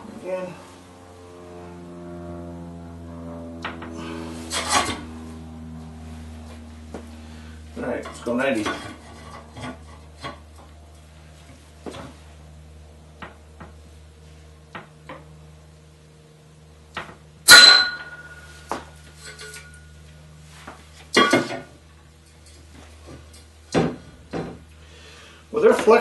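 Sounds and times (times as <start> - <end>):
steady low hum: 0.0 - 26.0
short metallic ring: 17.5 - 19.9.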